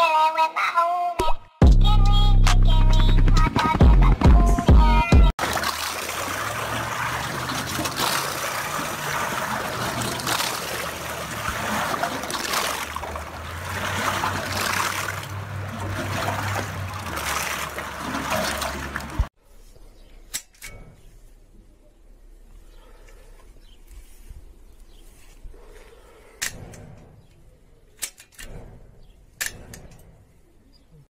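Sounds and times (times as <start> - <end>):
rain falling on water: 5.4 - 19.3.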